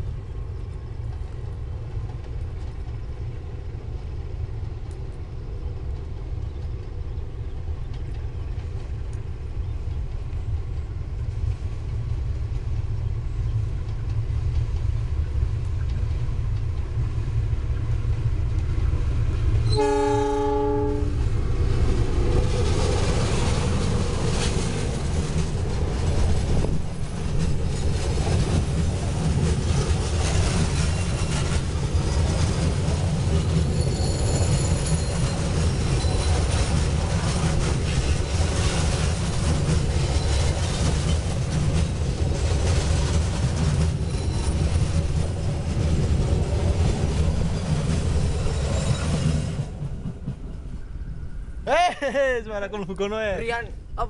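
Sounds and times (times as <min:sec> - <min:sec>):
diesel locomotive engine rumble: 0:00.0 - 0:54.0
train horn blast: 0:19.6 - 0:21.2
wheels clattering over rail joints: 0:21.8 - 0:50.7.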